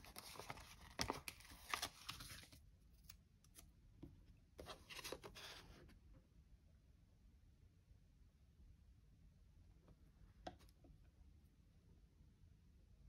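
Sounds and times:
paper sticker sheets rustling: 0:00.0 - 0:02.6.

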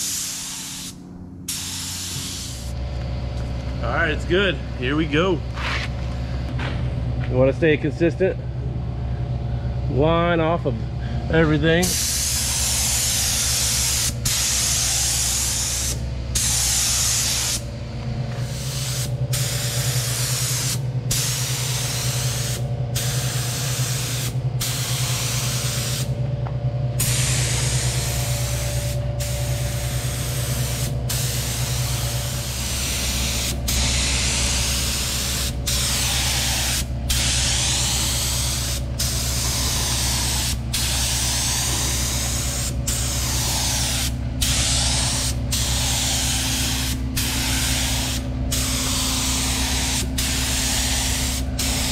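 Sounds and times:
spray gun hissing: 0:00.0 - 0:02.7, 0:11.8 - 0:17.7, 0:18.4 - 0:26.1, 0:27.0 - 0:51.9
steady low hum: 0:00.0 - 0:51.9.

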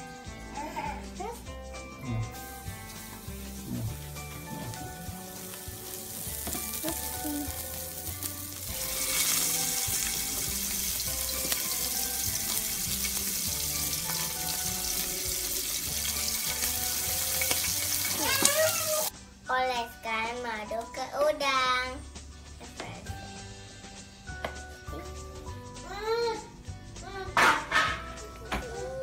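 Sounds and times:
background music with steady beat: 0:00.0 - 0:29.0
shrimp sizzling in hot oil: 0:02.4 - 0:19.1.

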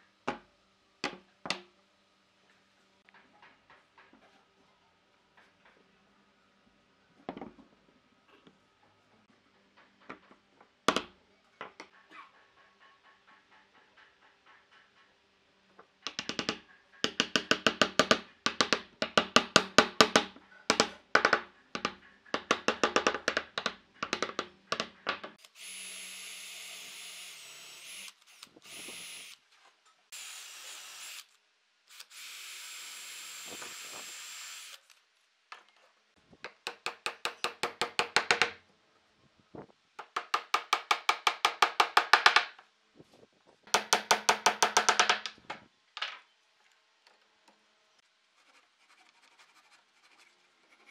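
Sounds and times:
cordless drill whining: 0:25.4 - 0:29.4
hammer tapping wood: 0:43.7 - 0:45.3.

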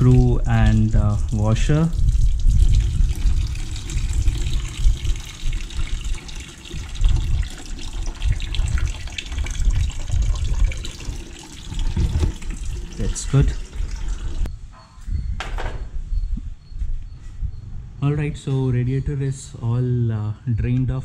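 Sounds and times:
liquid pouring into plastic bucket: 0:00.0 - 0:14.5.

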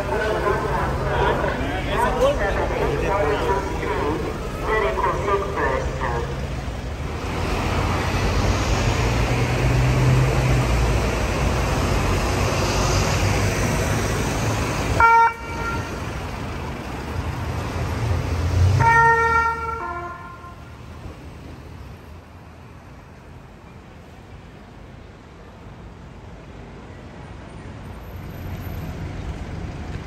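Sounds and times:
two-tone ambulance siren: 0:00.0 - 0:06.5, 0:14.9 - 0:16.1, 0:18.8 - 0:20.7
low engine rumble: 0:00.0 - 0:18.8
street noise: 0:00.0 - 0:30.0.

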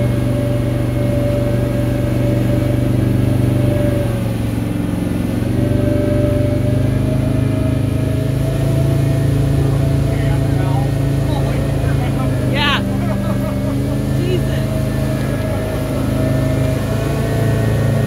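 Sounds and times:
motorboat engine running: 0:00.0 - 0:18.0.

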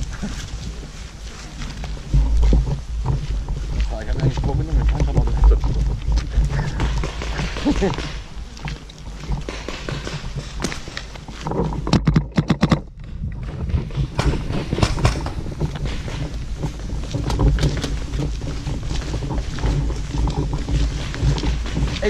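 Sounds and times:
footsteps crunching on gravel: 0:00.0 - 0:12.0, 0:13.0 - 0:22.0
low rumble: 0:00.0 - 0:12.0, 0:12.7 - 0:22.0
sharp cracks: 0:06.5 - 0:08.6, 0:09.2 - 0:16.2.

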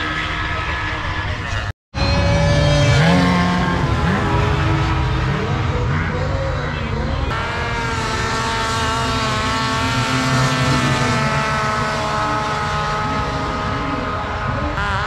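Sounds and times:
high-pitched engine wail: 0:00.0 - 0:15.0
racing snowmobile engines: 0:00.0 - 0:15.0.

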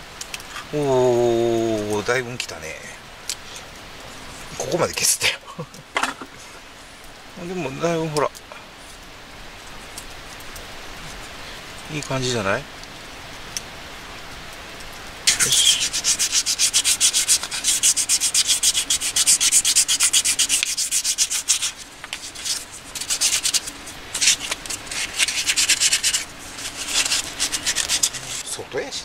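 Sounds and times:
sandpaper on wood: 0:15.3 - 0:28.4.

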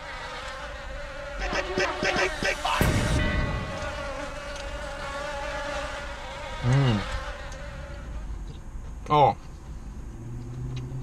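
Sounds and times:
high-pitched buzz: 0:00.0 - 0:08.4.

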